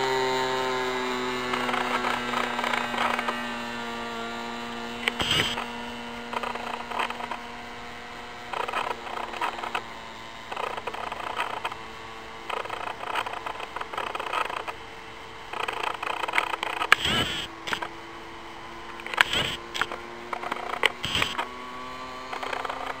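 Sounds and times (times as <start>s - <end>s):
model airplane engine droning: 0.0s - 23.0s
sharp click: 5.0s - 5.6s, 15.6s - 17.9s, 19.0s - 21.5s
bursts of noise: 15.5s - 18.0s, 19.0s - 21.5s.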